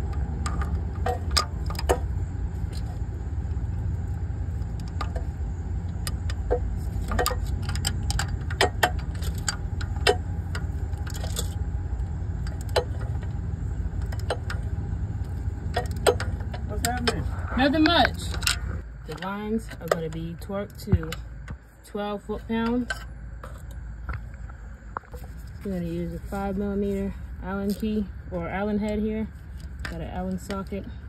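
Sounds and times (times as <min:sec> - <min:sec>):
steady low hum: 0:00.0 - 0:31.0
hand tools clicking and clinking: 0:05.9 - 0:11.6, 0:14.0 - 0:17.2.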